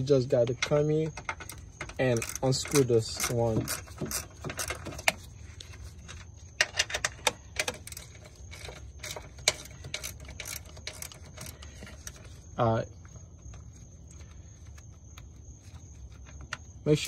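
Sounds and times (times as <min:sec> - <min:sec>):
hand tool clicking on screw: 0:00.6 - 0:05.2, 0:06.6 - 0:12.2.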